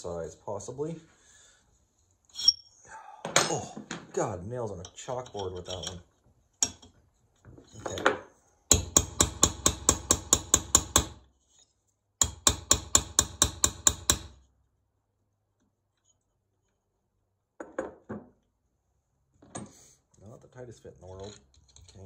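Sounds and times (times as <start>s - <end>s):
hammer tapping on metal driver: 8.7s - 11.2s, 12.2s - 14.4s.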